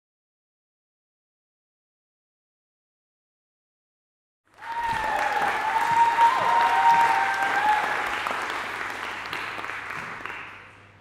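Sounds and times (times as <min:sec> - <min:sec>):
long high cheer: 0:04.5 - 0:10.4
audience clapping and cheering: 0:04.5 - 0:11.0.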